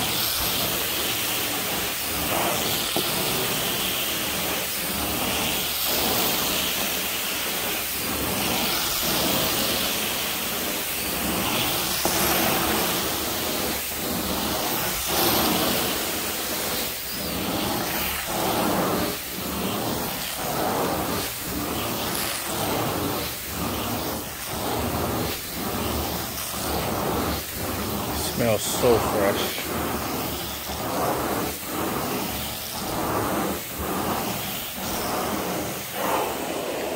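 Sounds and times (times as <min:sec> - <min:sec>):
carpet extraction wand hissing: 0:00.0 - 0:36.9.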